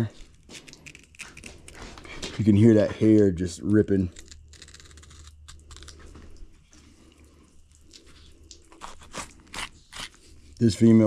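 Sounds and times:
knife ripping through hair: 8.8 - 10.2.

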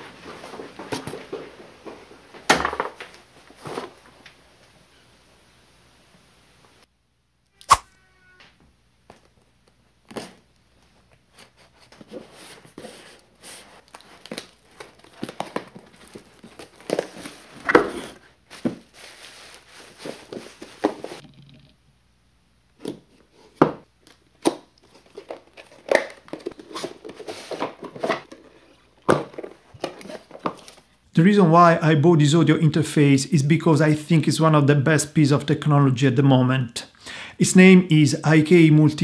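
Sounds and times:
bubble wrap crinkling: 12.4 - 21.2, 24.0 - 31.0.

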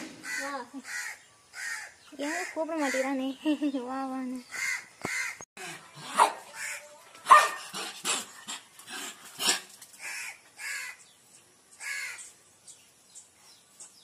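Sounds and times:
dogs barking and yipping: 6.0 - 10.3.

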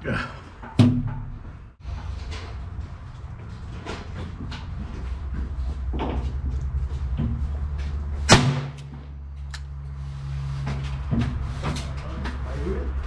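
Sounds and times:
revolver gunshot: 8.3 - 8.8.

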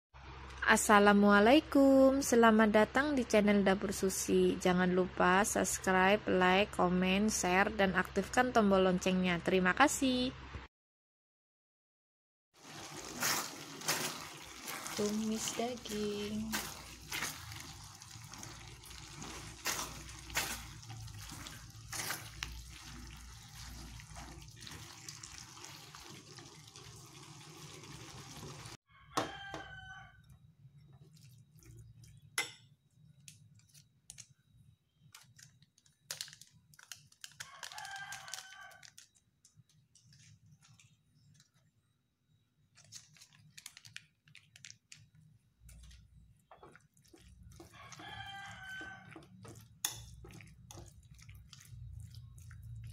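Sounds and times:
food sizzling in a wok: 12.6 - 28.8
rooster crowing: 28.9 - 30.3, 37.4 - 39.0, 47.6 - 49.6.

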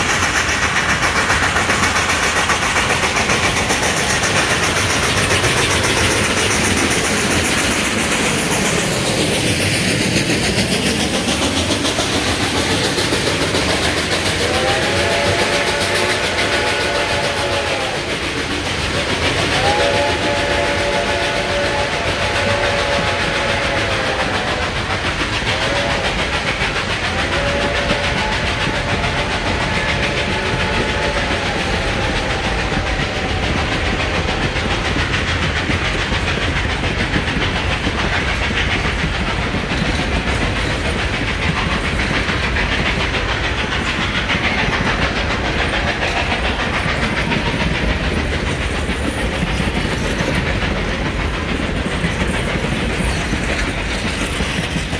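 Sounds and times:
train wheels clickety-clack: 0.0 - 54.9
steam locomotive chime whistle: 12.3 - 18.4, 19.1 - 35.3.

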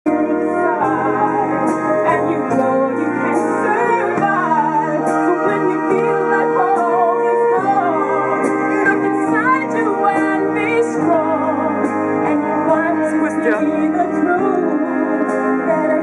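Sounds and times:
concert band playing: 0.0 - 16.0
woman singing a ballad: 0.1 - 16.0.

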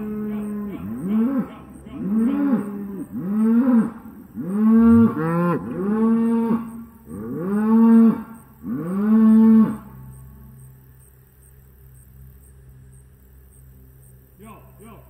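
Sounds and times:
cattle mooing: 0.0 - 10.0.

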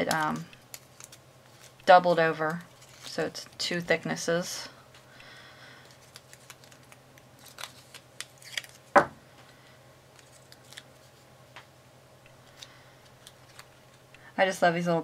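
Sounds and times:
cardstock clicks and rustles: 0.0 - 3.8, 5.8 - 8.9, 12.4 - 14.0.

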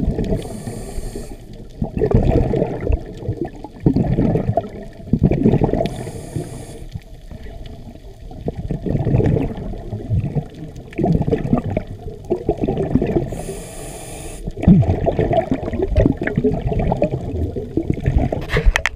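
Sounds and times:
gurgling exhale bubbles: 0.0 - 18.8
regulator hissing inhales: 0.3 - 1.6, 5.9 - 7.0, 13.3 - 14.6.

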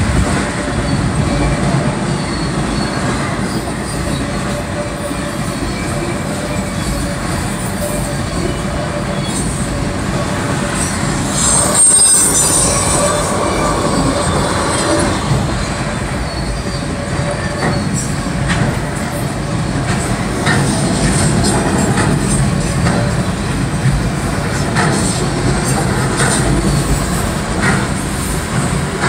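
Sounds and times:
train wheels rumbling on rail: 0.0 - 29.0
high wheel squeal: 0.7 - 19.5
wheels clicking over rail joints: 13.6 - 29.0.

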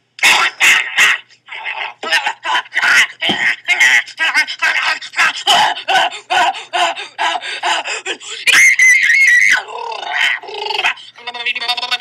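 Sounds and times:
woman screaming high-pitched: 8.4 - 10.5.

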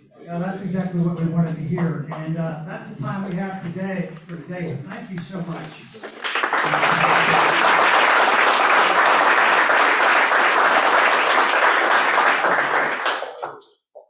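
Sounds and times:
audience applauding: 5.6 - 13.7.

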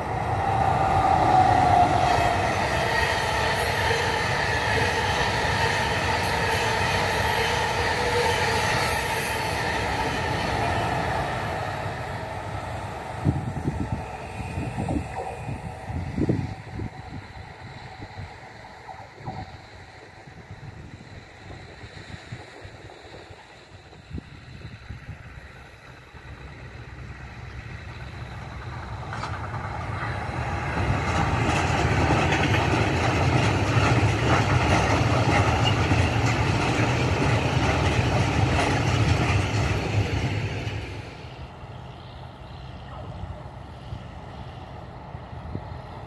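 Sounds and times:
freight train wheels rattling on rails: 0.0 - 46.0.

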